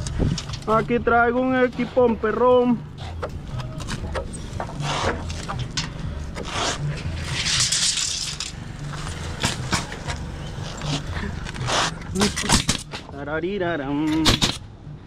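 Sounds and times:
hissing scrape: 6.4s - 12.2s
hands rubbing on wood: 9.9s - 12.1s.

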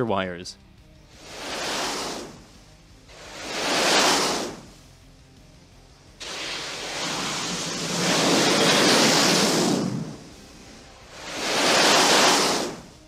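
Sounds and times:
jet engine roar: 1.1s - 2.5s, 3.1s - 4.8s, 6.2s - 13.0s.

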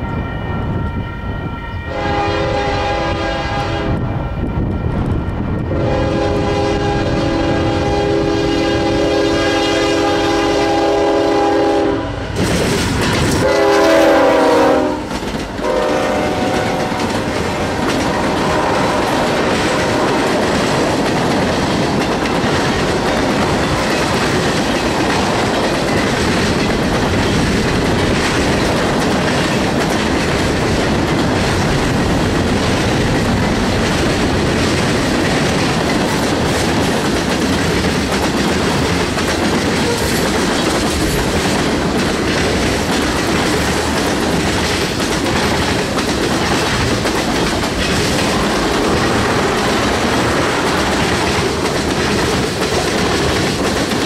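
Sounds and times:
locomotive air horn: 0.0s - 4.1s, 5.7s - 12.3s, 13.4s - 20.4s
freight cars rumbling and clacking: 12.3s - 13.6s, 15.0s - 15.7s, 16.3s - 54.0s.

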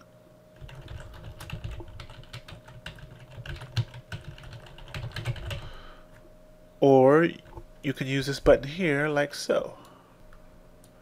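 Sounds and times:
keyboard typing: 0.6s - 5.7s.

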